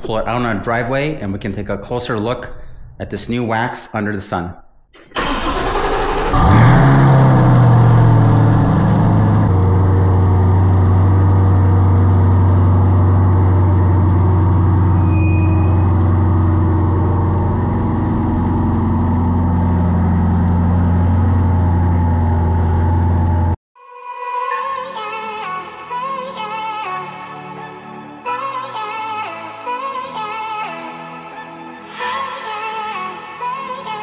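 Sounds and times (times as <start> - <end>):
car engine idling: 5.2 - 23.6.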